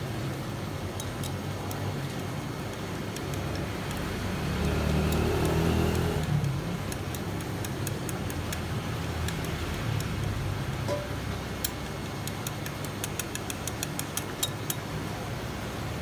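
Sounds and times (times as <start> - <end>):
chopsticks clicking on ceramic dish: 10.9 - 14.8.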